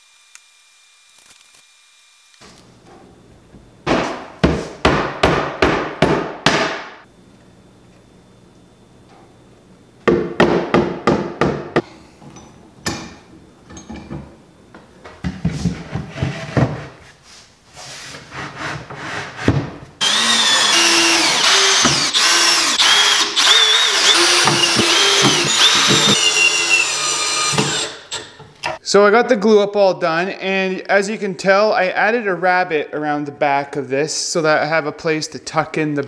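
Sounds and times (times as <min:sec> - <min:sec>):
cordless drill driving screws: 0:20.0 - 0:28.3.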